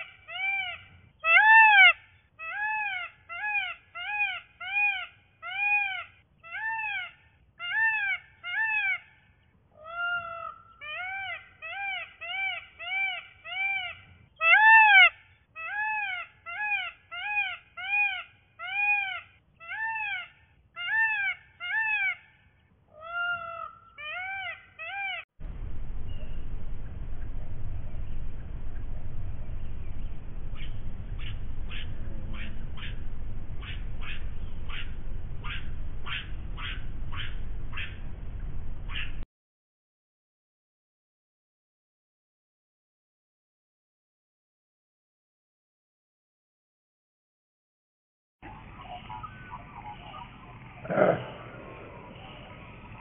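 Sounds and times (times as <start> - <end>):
low background rumble: 25.4 - 39.2, 48.4 - 53.0
animal mewing: 48.9 - 53.0.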